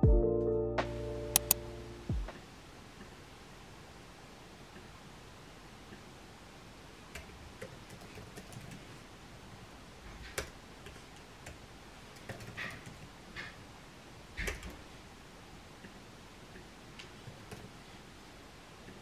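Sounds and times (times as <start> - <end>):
laptop keyboard typing: 1.4 - 1.6, 7.2 - 8.9, 11.4 - 13.0.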